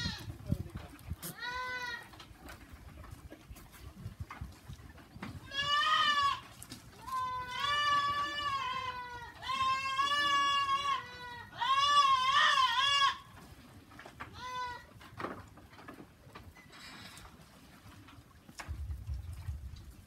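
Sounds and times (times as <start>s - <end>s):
goats bleating: 1.2s - 2.2s, 5.4s - 13.3s, 14.3s - 14.9s.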